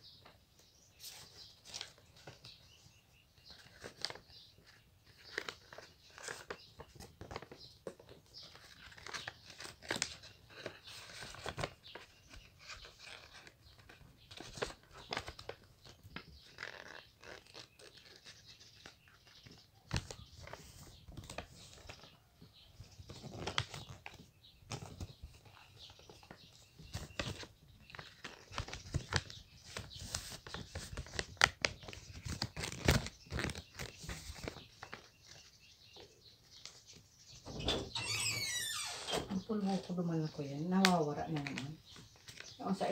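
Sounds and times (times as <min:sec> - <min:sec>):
paper being folded: 0:03.5 - 0:22.1, 0:23.0 - 0:35.5.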